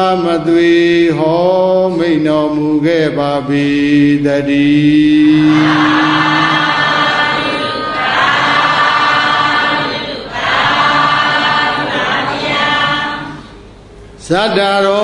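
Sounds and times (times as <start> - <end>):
chanting in held notes: 4.6 - 13.6.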